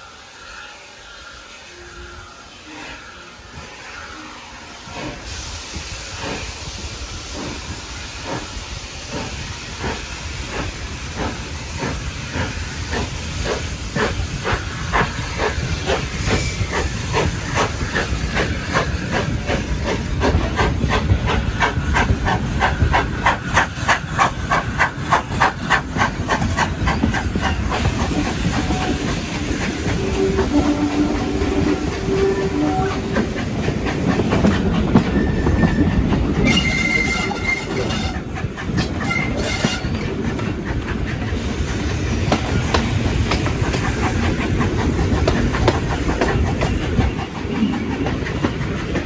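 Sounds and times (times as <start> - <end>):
coaches rumbling on rails: 0.0 - 49.0
steam locomotive exhaust chuffs: 4.8 - 49.0.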